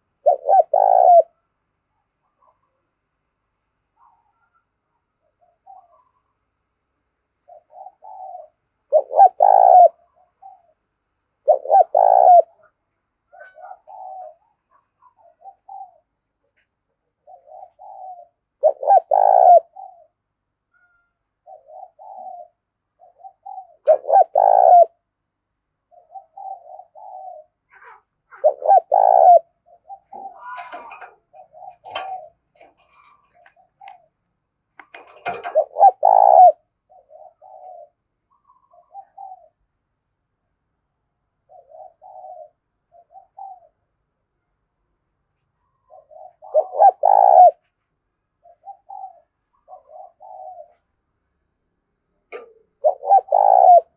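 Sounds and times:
dove cooing: 0:00.0 - 0:01.4, 0:04.0 - 0:06.4, 0:07.4 - 0:25.1, 0:25.8 - 0:34.2, 0:34.8 - 0:39.7, 0:41.4 - 0:44.0, 0:45.6 - 0:47.7, 0:48.3 - 0:51.1, 0:52.3 - 0:53.9.

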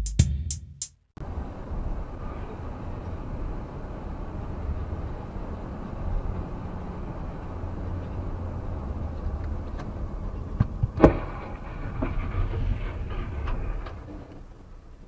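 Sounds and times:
car rumbling on road: 0:01.2 - 0:15.0
knocks and clatter: 0:08.0 - 0:14.6
loud crash impact: 0:11.0 - 0:14.1.

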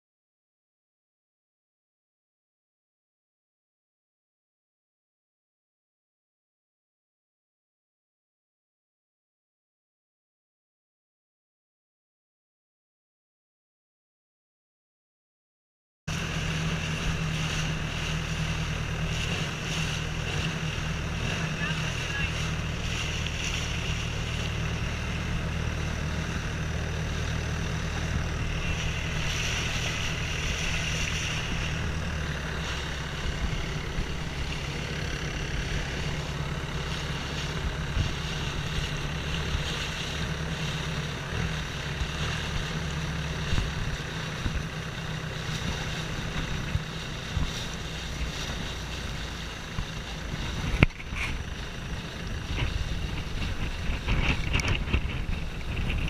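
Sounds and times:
boat engine running: 0:16.1 - 0:56.0
water rushing along hull: 0:16.1 - 0:56.0
wind buffeting microphone: 0:45.6 - 0:56.0.

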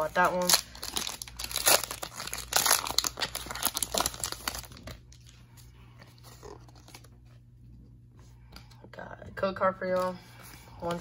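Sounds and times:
foil wrapper crinkling and tearing: 0:00.0 - 0:05.4, 0:06.2 - 0:07.2.

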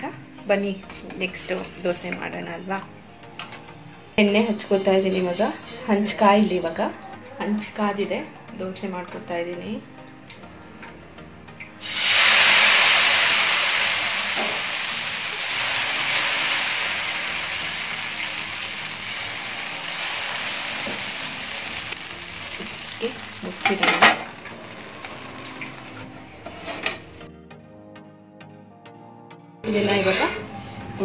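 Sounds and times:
batter sizzling on hot pan: 0:11.8 - 0:27.2.

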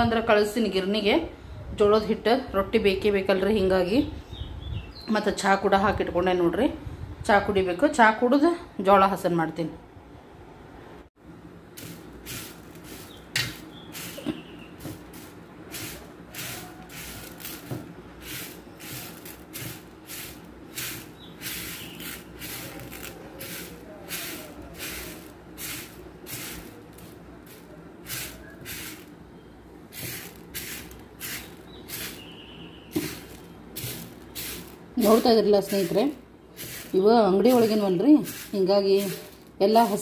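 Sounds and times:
grains raked across steel plate: 0:11.8 - 0:29.1, 0:29.9 - 0:32.3, 0:32.9 - 0:40.0.

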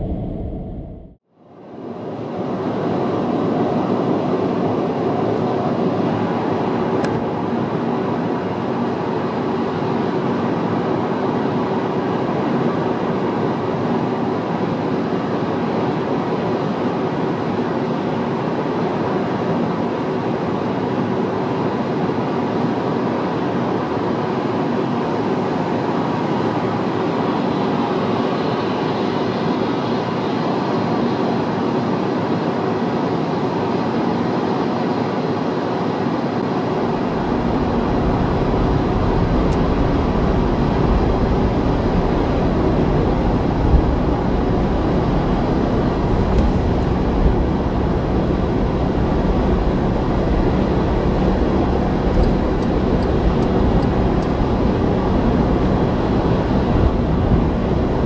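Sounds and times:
car engine: 0:00.0 - 0:01.2, 0:36.8 - 0:58.0
tyre and wind noise: 0:36.8 - 0:58.0.

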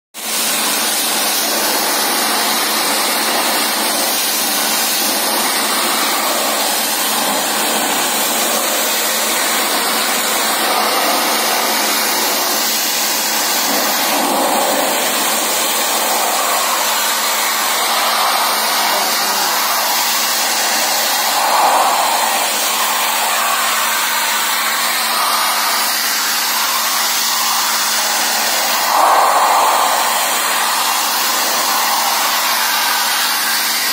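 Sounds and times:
pressure washer spray hiss: 0:00.2 - 0:33.9
low hum: 0:28.0 - 0:33.0.

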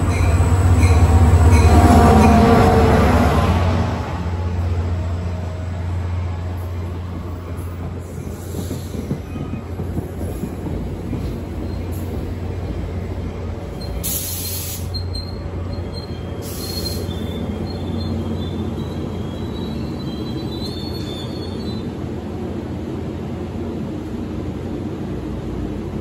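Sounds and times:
train wheels rumbling on rails: 0:00.0 - 0:26.0
brake squeals: 0:13.7 - 0:22.0
short air hisses: 0:14.0 - 0:15.0, 0:16.4 - 0:17.1.

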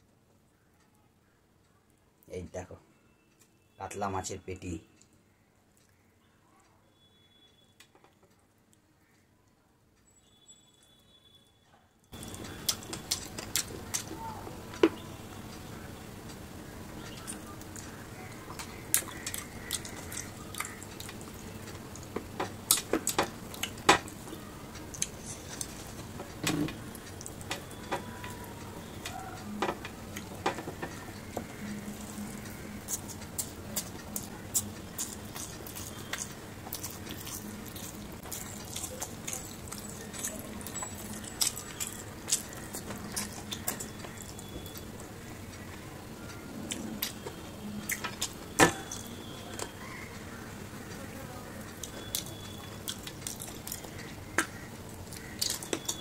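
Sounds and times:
wet chewing and lip smacks: 0:17.0 - 0:28.4, 0:29.1 - 0:44.8, 0:51.6 - 0:56.0.

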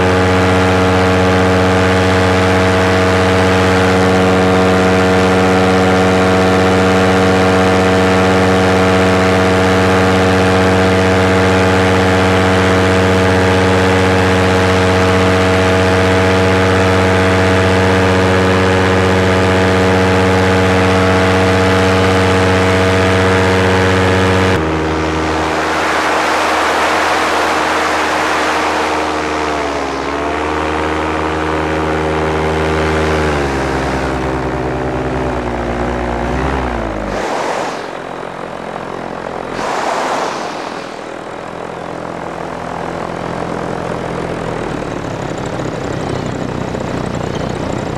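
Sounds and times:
small aircraft engine and propeller: 0:00.0 - 0:47.9
wind rush: 0:24.6 - 0:30.5, 0:37.1 - 0:42.1.

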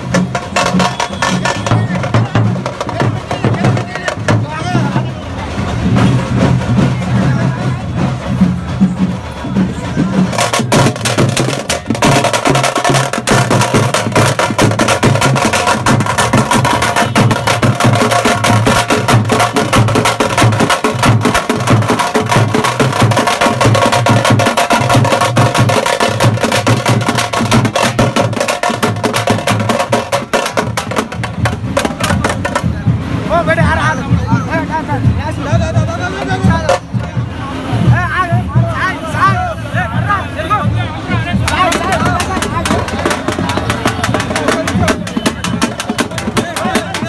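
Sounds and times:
fast dense drumming: 0:00.0 - 0:47.0.

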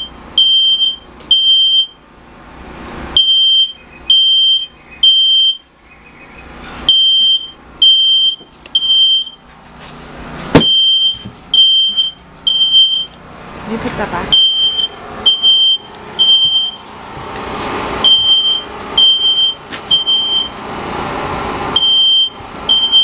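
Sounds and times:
smoke alarm beeping: 0:00.0 - 0:02.0, 0:03.2 - 0:09.4, 0:10.6 - 0:13.2, 0:14.3 - 0:16.8, 0:18.0 - 0:20.6, 0:21.8 - 0:23.0.

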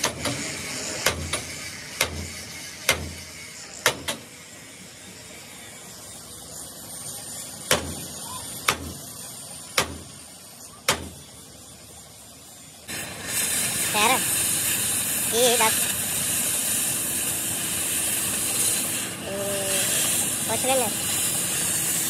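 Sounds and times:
sharp knocks: 0:09.8 - 0:10.1.

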